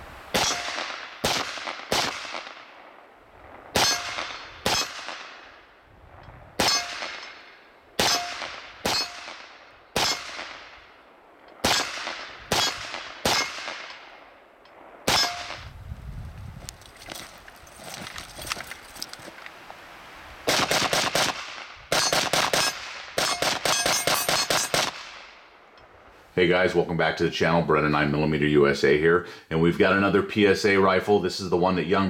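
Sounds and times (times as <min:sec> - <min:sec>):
rifle shots echoing: 0:00.3 - 0:05.8, 0:06.6 - 0:15.7, 0:20.4 - 0:25.6.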